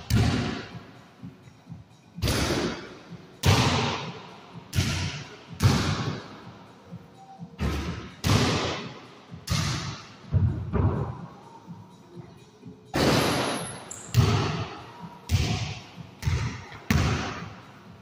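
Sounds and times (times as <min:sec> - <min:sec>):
basketball thudding with echo: 0:00.1 - 0:00.6, 0:04.7 - 0:06.2, 0:07.6 - 0:08.9, 0:15.3 - 0:17.5.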